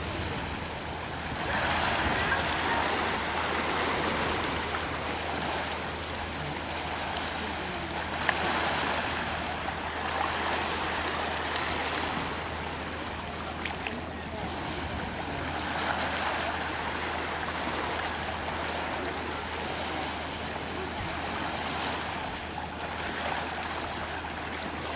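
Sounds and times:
waves lapping on rocky shore: 0.0s - 24.9s.

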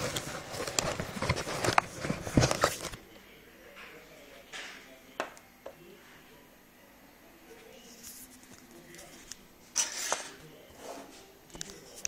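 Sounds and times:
cardboard box being handled: 0.0s - 3.0s.

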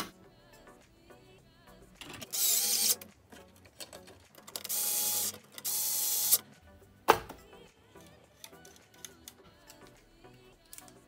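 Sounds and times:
electric screwdriver whirring: 2.3s - 3.0s, 4.7s - 6.4s.

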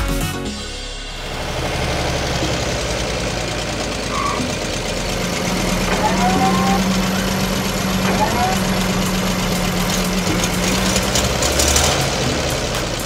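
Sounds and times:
cartoon engine idling hum: 0.5s - 13.0s.

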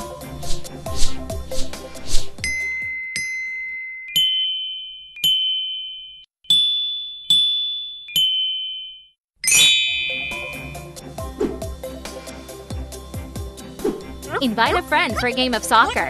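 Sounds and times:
toy xylophone notes: 2.4s - 10.9s
background music with a beat: 10.1s - 15.0s.

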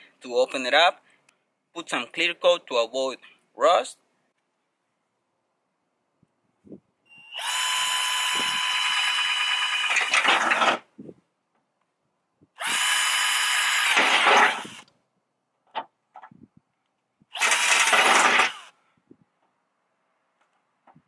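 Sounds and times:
cordless drill boring through metal: 7.2s - 10.8s, 12.6s - 14.9s, 17.3s - 18.8s.

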